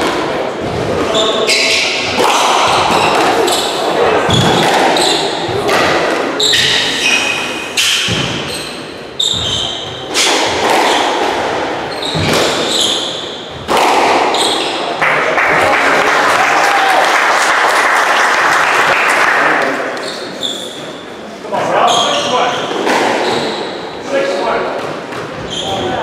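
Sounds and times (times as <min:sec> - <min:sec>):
squash ball hits echoing: 0:00.0 - 0:15.2, 0:22.7 - 0:23.9
shoes squeaking on hardwood: 0:06.4 - 0:11.2, 0:11.8 - 0:13.6
crowd applause: 0:15.0 - 0:19.9.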